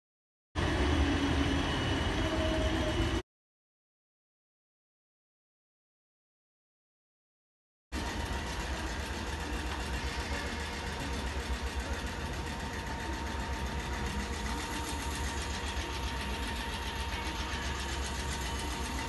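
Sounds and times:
train wheels rumbling: 8.0s - 19.0s.

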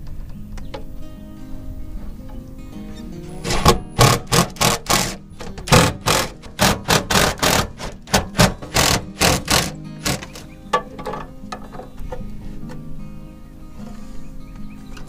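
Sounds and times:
impact driver hammering screws: 3.4s - 10.5s.

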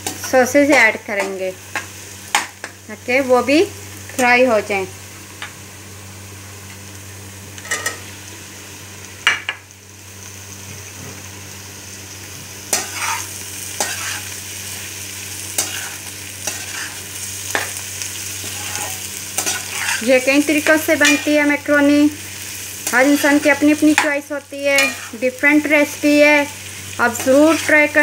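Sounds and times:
vegetables sizzling in oil: 0.0s - 28.0s
metal spatula scraping pan: 18.4s - 20.1s, 24.8s - 25.2s.

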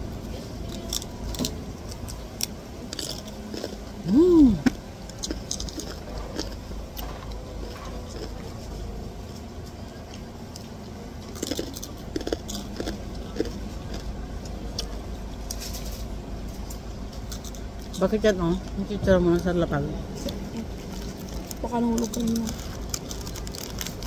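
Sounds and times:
steady low rumble: 0.0s - 24.0s
pork rinds crunching: 0.6s - 3.8s, 4.6s - 8.4s, 10.5s - 16.0s, 20.3s - 24.0s
plastic bag rustling: 20.7s - 24.0s.

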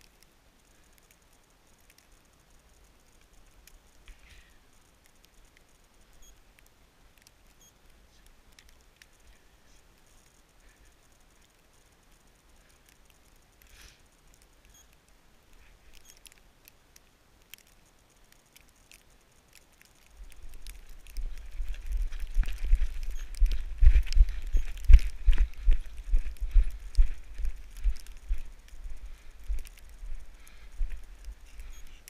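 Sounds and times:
faint ticks and clicks: 0.0s - 32.0s
low rumble: 20.3s - 31.7s.

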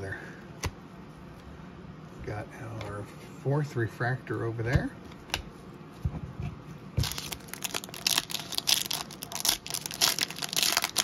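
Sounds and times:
foil wrapper crinkling and tearing: 7.0s - 11.0s.

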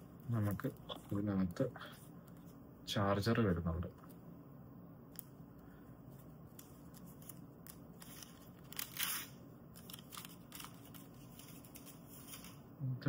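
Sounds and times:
paper crinkling: 6.1s - 12.6s
loud paper rustle: 6.5s - 12.6s.

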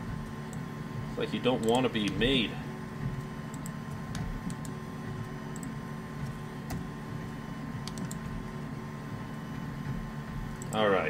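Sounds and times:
steady electrical hum: 0.0s - 11.0s
computer mouse clicks: 3.5s - 4.8s, 5.5s - 6.9s, 7.8s - 8.3s, 10.5s - 10.8s
keyboard clicks: 3.5s - 4.8s, 5.5s - 6.9s, 7.8s - 8.3s.

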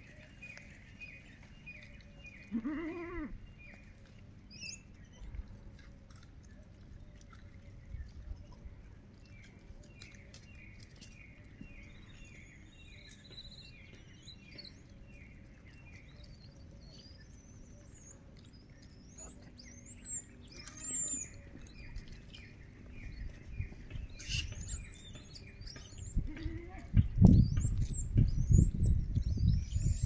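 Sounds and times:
higher bird chirps and whistles: 16.8s - 30.0s.

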